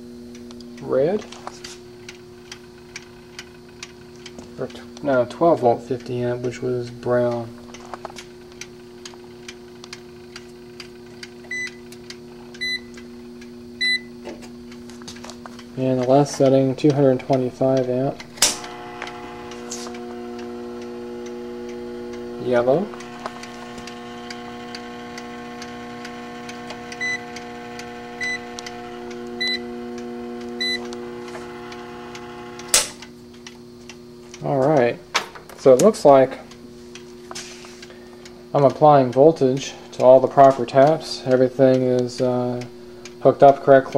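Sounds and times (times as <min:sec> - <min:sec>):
transformer hum: 0:00.4 - 0:33.2
mechanical timer ticking: 0:02.0 - 0:14.1, 0:15.6 - 0:34.9, 0:37.8 - 0:43.9
multimeter beeps: 0:11.5 - 0:11.8, 0:12.6 - 0:13.0, 0:13.8 - 0:14.1, 0:18.2 - 0:29.8, 0:30.4 - 0:31.3.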